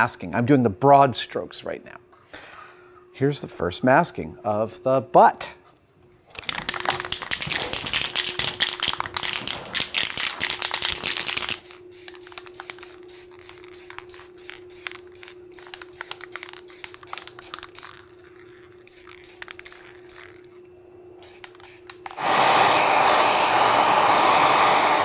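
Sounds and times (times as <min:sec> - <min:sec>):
faint steady hum: 0:00.0 - 0:22.2
spray can hissing: 0:06.5 - 0:20.5, 0:21.2 - 0:25.0.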